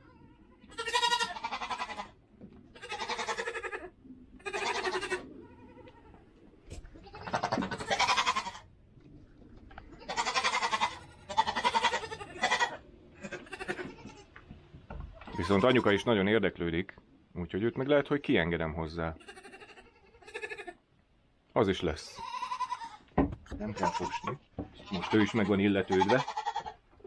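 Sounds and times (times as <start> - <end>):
goats bleating: 0.0 - 8.7, 9.8 - 14.5, 15.2 - 16.2, 19.1 - 20.8, 22.1 - 26.8.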